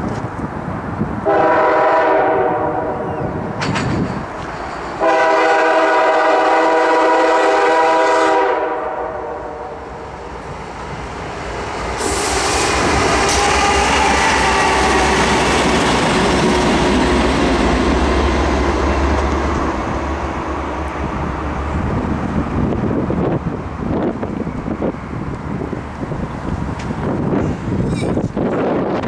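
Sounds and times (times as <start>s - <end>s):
locomotive air horn blast: 1.2s - 3.2s, 5.0s - 10.0s, 12.0s - 15.0s
train wheel noise: 3.1s - 9.0s, 9.8s - 29.0s
locomotive engine rumble: 9.2s - 29.0s.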